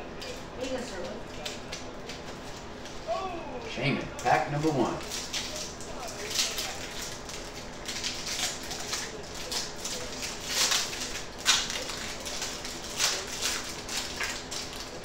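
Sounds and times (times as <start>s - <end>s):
foil wrappers crinkling: 4.2s - 15.0s.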